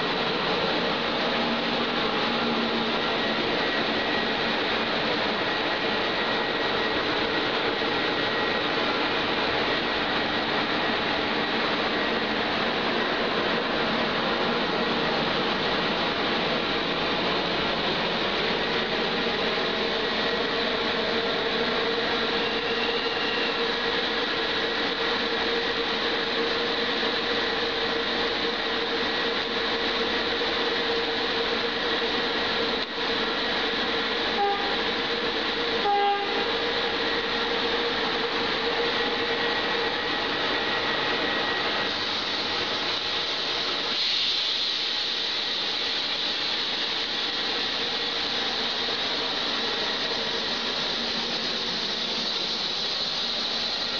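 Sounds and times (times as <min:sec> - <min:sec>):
train rumble and rail noise: 0:00.0 - 0:53.9
train horn blasts: 0:34.3 - 0:34.9, 0:35.8 - 0:36.6.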